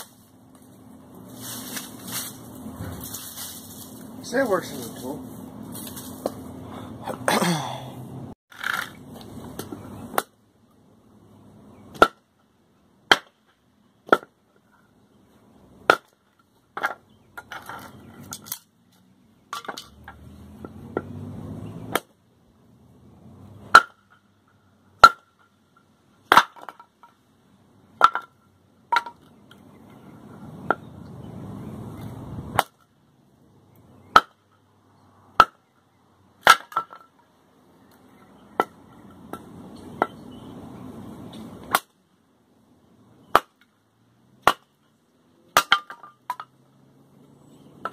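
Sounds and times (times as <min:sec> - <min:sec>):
machete chopping wood: 0:09.6 - 0:10.4, 0:11.9 - 0:12.3, 0:13.1 - 0:14.4, 0:15.8 - 0:16.2, 0:20.6 - 0:22.2, 0:23.7 - 0:24.2, 0:25.0 - 0:25.5, 0:26.3 - 0:26.9, 0:28.0 - 0:28.3, 0:32.5 - 0:32.9, 0:34.1 - 0:34.5, 0:35.4 - 0:35.7, 0:36.4 - 0:37.1, 0:38.5 - 0:40.1, 0:41.7 - 0:42.0, 0:43.2 - 0:43.7, 0:44.4 - 0:44.8, 0:45.5 - 0:46.4.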